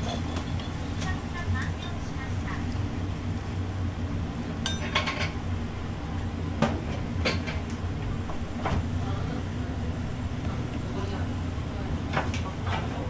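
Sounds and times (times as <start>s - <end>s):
dishes and metal kitchenware clinking: 0.0s - 1.0s, 4.6s - 5.4s
kitchen low hum: 0.0s - 13.0s.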